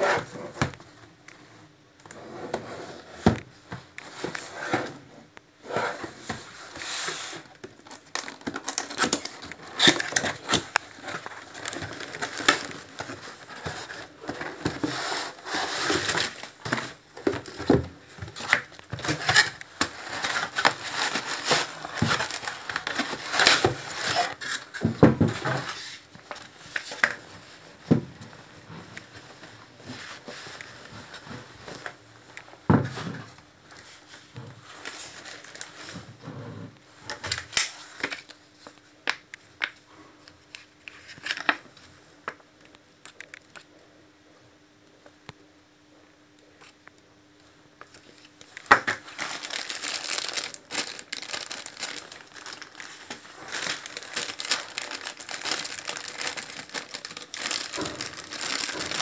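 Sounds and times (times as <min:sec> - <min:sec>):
packaging rustling and crinkling: 0:05.9 - 0:32.0, 0:32.9 - 0:36.1, 0:40.6 - 0:41.6, 0:47.9 - 0:59.0.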